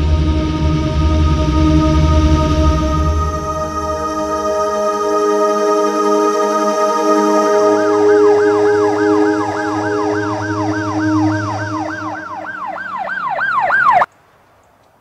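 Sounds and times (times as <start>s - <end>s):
ambient music chords: 0.0s - 13.9s
emergency siren yelping: 3.2s - 14.1s.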